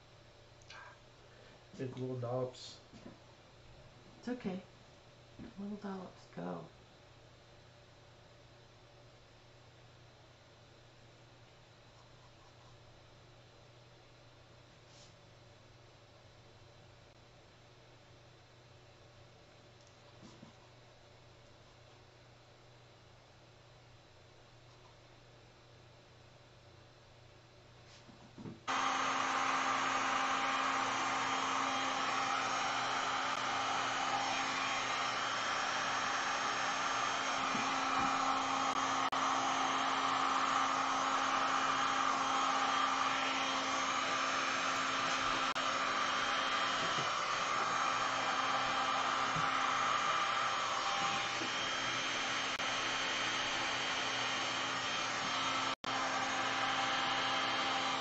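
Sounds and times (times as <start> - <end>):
heat gun fan blowing: 28.7 - 58.0.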